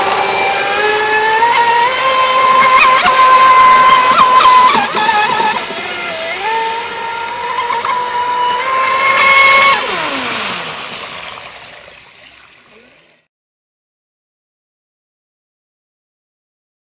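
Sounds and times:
electric motor whining: 0:00.0 - 0:12.5
hull hissing on water: 0:00.0 - 0:12.9.

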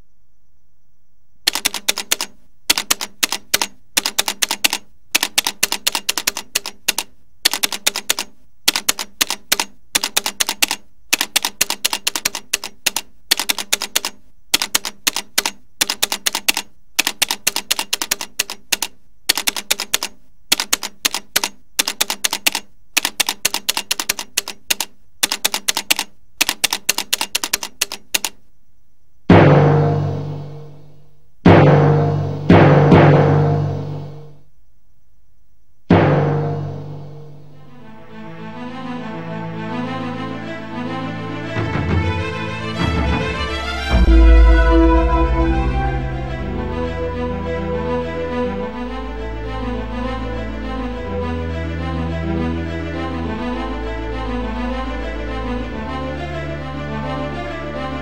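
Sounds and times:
typewriter keys clacking: 0:01.5 - 0:28.4.

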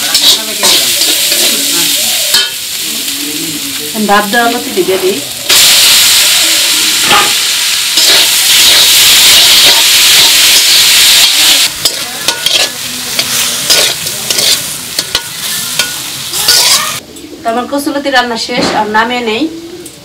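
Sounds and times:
metal spatula scraping a wok: 0:00.0 - 0:02.9, 0:07.0 - 0:08.4, 0:11.8 - 0:17.0
frying hiss: 0:00.0 - 0:17.0
loud sizzle in hot oil: 0:00.0 - 0:17.0.

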